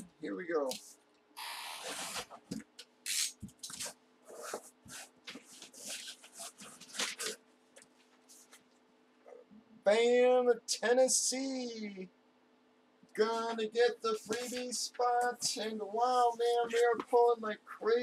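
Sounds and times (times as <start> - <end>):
paper bag rustling: 3.7 - 7.4.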